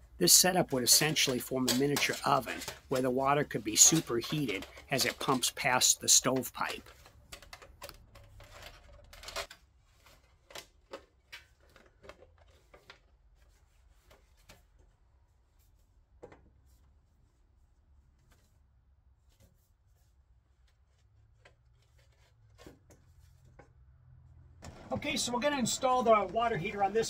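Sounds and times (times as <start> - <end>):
copper tubing clicking and rubbing: 0.2 - 9.6.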